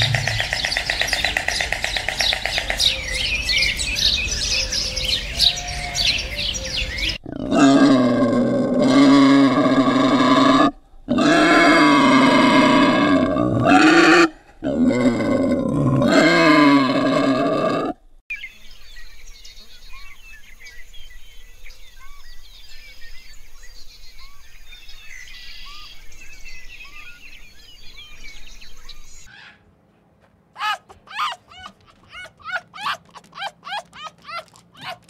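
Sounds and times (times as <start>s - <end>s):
animal calling loudly: 0.0s - 3.4s, 7.1s - 18.0s, 29.3s - 29.7s, 30.6s - 35.0s
birds chirping: 0.0s - 7.6s, 18.3s - 35.0s.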